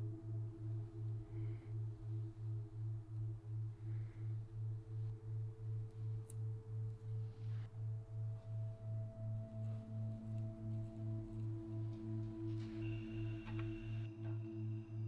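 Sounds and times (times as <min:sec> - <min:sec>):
ambient background music: 0:00.0 - 0:15.0.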